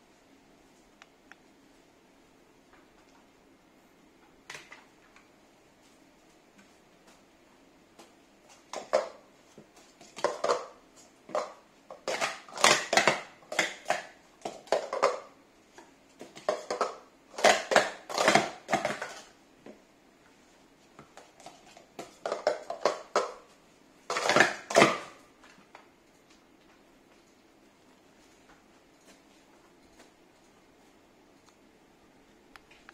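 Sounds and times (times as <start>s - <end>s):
plastic cups clattering: 8.5s - 19.4s, 21.0s - 25.6s.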